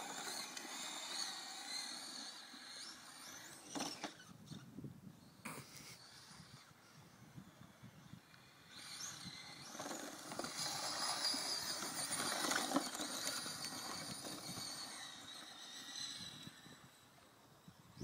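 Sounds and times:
electric motor whine: 0:00.0 - 0:04.6, 0:05.9 - 0:18.0
tyres scrabbling on dirt: 0:08.8 - 0:15.9.

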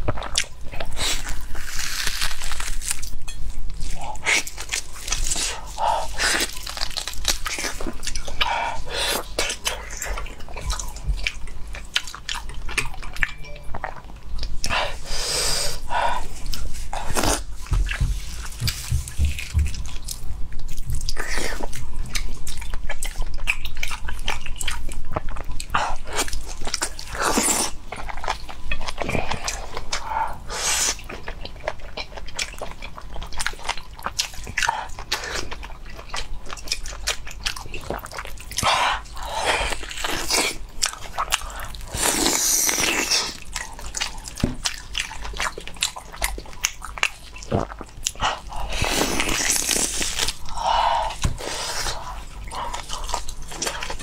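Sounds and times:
meat tearing and squelching: 0:00.0 - 0:12.9, 0:25.1 - 0:54.0
wet chewing and lip smacking: 0:00.0 - 0:14.8, 0:16.2 - 0:54.0.

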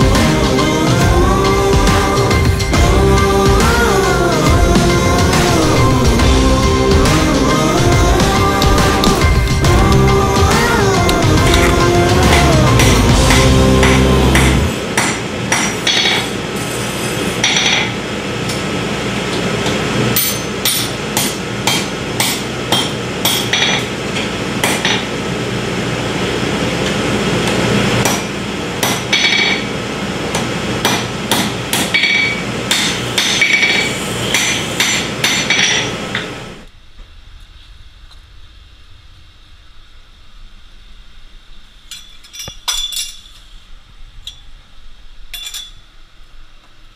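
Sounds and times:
steady background noise: 0:00.0 - 0:46.9
hammer striking metal on anvil: 0:08.2 - 0:16.3, 0:17.4 - 0:18.0, 0:20.2 - 0:23.9, 0:24.6 - 0:25.1, 0:28.0 - 0:29.7, 0:30.8 - 0:36.3, 0:41.9 - 0:43.4, 0:45.3 - 0:45.8.

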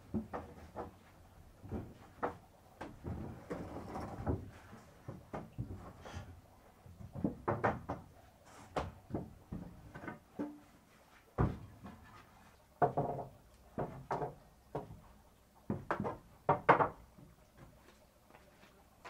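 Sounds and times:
wood knocking on wood: 0:07.0 - 0:08.1, 0:12.8 - 0:15.0, 0:15.7 - 0:17.3.

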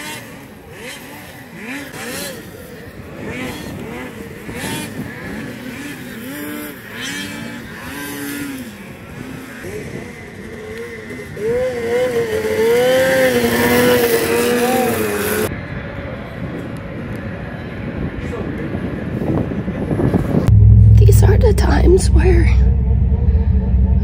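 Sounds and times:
engine holding high revs: 0:00.0 - 0:15.5, 0:20.4 - 0:24.0
snowmobile engines revving: 0:00.0 - 0:15.5.

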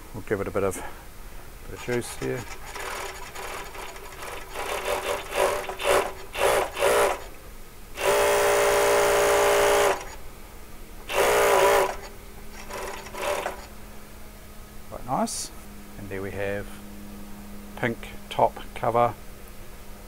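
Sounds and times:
sewing machine stitching: 0:01.8 - 0:07.3, 0:09.4 - 0:10.2, 0:11.1 - 0:13.7.

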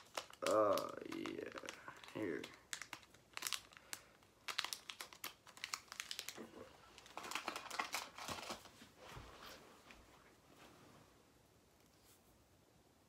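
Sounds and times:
plastic package crinkling: 0:00.0 - 0:08.7.

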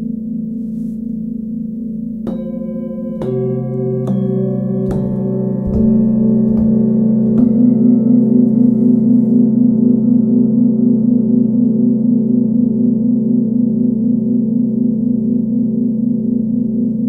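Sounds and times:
singing bowls struck with mallet: 0:02.2 - 0:09.6.

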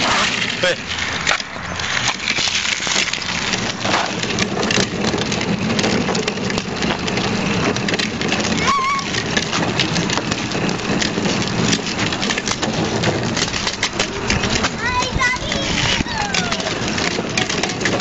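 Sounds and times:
plastic wheels rattling on asphalt: 0:00.0 - 0:18.0
child's short high voice: 0:08.6 - 0:09.1, 0:14.8 - 0:16.8.

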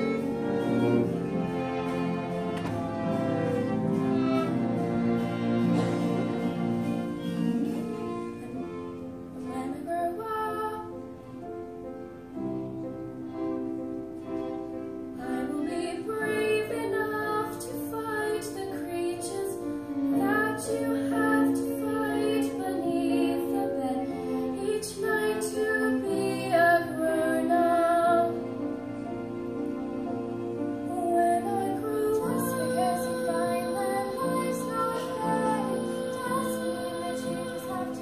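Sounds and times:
instrumental accompaniment: 0:00.0 - 0:38.0
girls singing: 0:15.2 - 0:28.5, 0:30.8 - 0:38.0.

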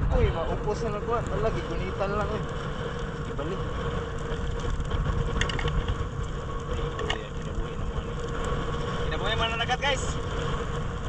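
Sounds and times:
low rumble: 0:00.0 - 0:11.0
palm fronds crackling in fire: 0:00.0 - 0:11.0.

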